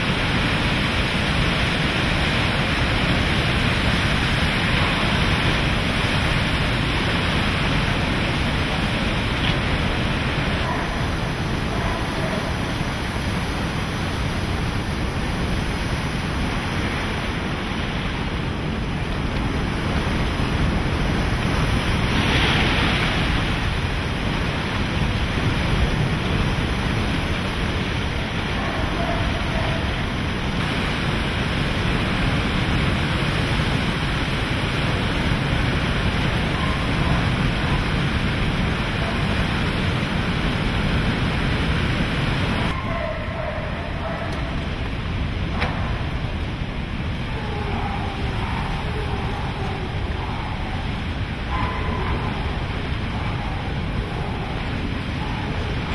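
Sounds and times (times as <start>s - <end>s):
hurricane wind: 0.0s - 55.9s
water rushing and churning: 0.0s - 55.9s.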